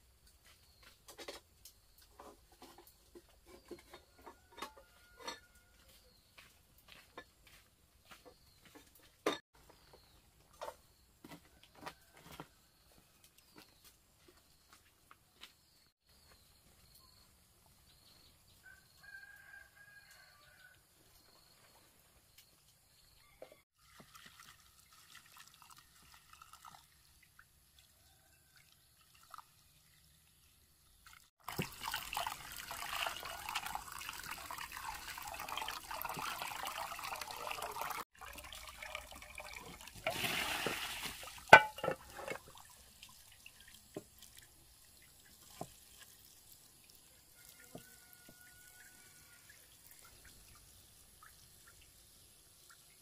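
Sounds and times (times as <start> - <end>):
running water: 23.8 - 53.0.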